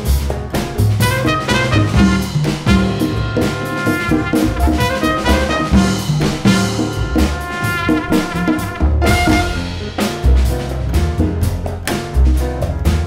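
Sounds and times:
congas: 0.0s - 13.0s
drum kit: 0.0s - 13.0s
walking upright bass: 0.0s - 13.0s
trumpet melody: 1.0s - 10.0s.

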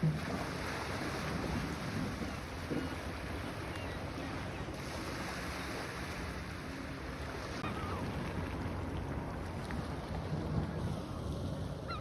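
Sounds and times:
wind rumbling on microphone: 0.0s - 12.0s
faint gull call: 7.6s - 8.1s, 11.0s - 12.0s.

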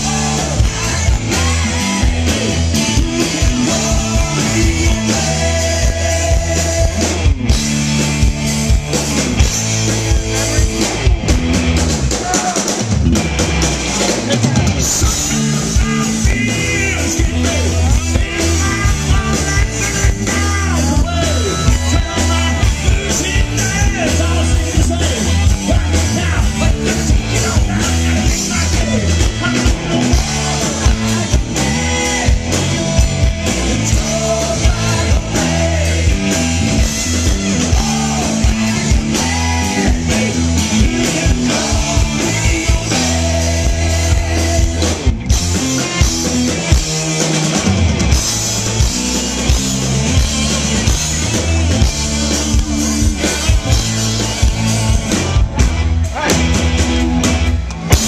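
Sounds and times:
man singing lead: 0.0s - 11.1s, 12.1s - 12.9s, 14.0s - 46.7s, 56.0s - 56.5s
live rock band playing: 0.0s - 58.0s.

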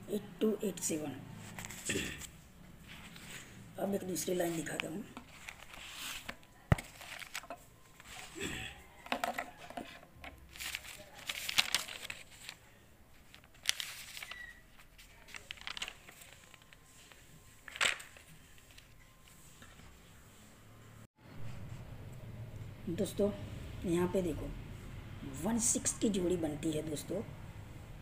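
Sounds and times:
paper rustling and crinkling: 1.4s - 2.0s, 2.8s - 3.6s, 4.3s - 19.9s.

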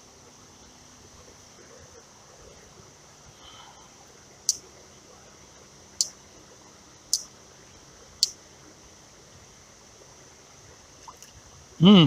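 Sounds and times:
faint steady hiss: 0.0s - 12.0s
sharp high clicks: 4.5s - 4.7s, 6.0s - 6.2s, 7.1s - 7.3s, 8.2s - 8.4s.

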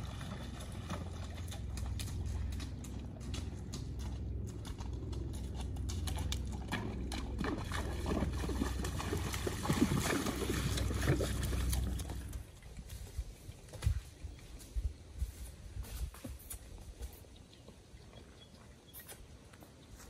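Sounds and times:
low rumble: 0.0s - 13.4s
hooves splashing through water: 0.0s - 20.0s.

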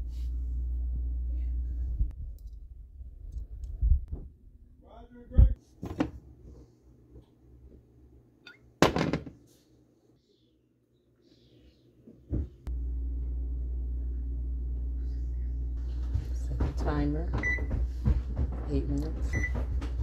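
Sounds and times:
kitchen appliance humming: 12.7s - 20.0s.

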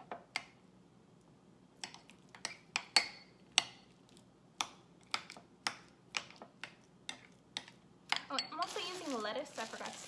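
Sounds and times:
utensil tapping and scraping bowl: 1.8s - 8.8s.

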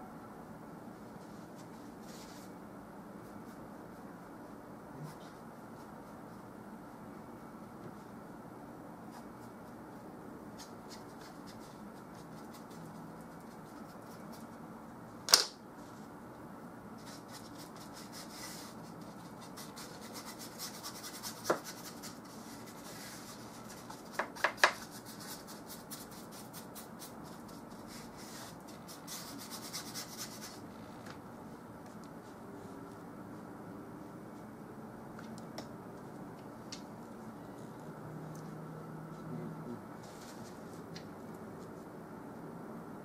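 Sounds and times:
paintbrush stroking on canvas: 17.0s - 24.2s, 24.8s - 30.6s.

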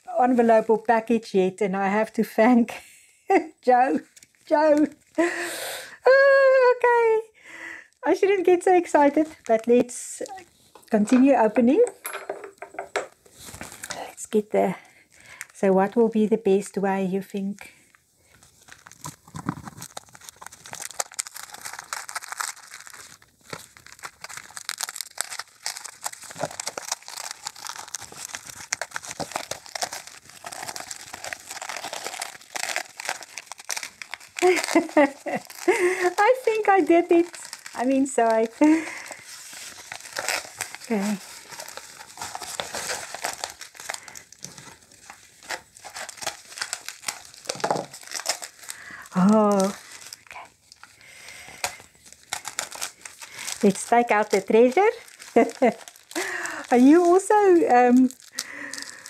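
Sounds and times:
packaging crinkling: 3.9s - 5.5s, 12.6s - 14.1s, 14.9s - 15.6s, 17.6s - 59.0s
scissors cutting package: 18.6s - 59.0s.

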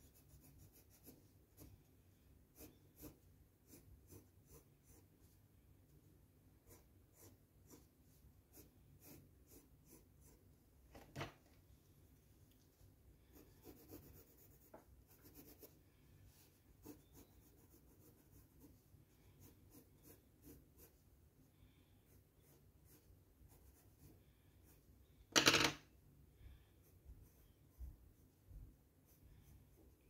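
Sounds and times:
pencils scratching on paper: 0.0s - 5.4s, 6.6s - 10.5s, 13.2s - 21.1s, 22.1s - 25.7s, 26.7s - 30.0s.

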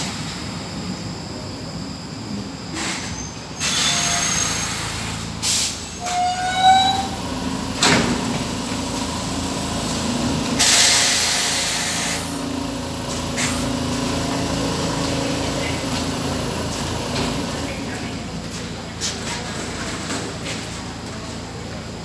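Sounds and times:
train low hum: 0.0s - 22.0s
compressed air hissing: 10.6s - 12.4s.

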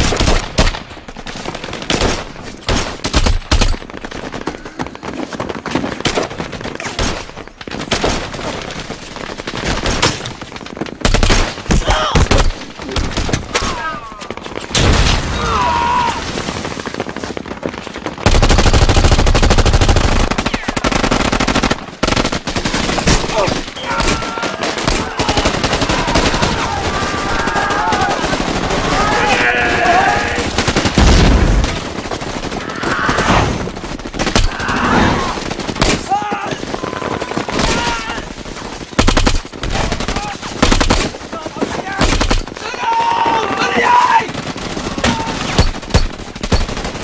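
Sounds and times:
men shouting: 23.8s - 30.6s, 42.6s - 44.4s
automatic gunfire: 30.2s - 42.6s.

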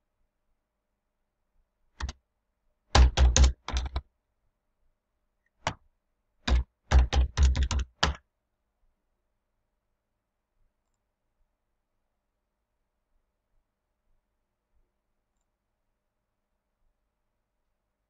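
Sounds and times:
typing on computer keyboard: 2.0s - 2.2s, 2.9s - 4.0s, 6.5s - 8.2s.

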